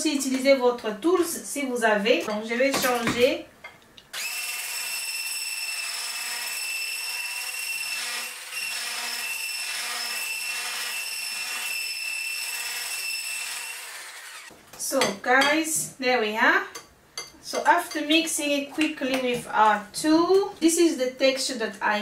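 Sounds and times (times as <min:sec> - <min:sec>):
electric hand blender whining: 0:04.2 - 0:14.5.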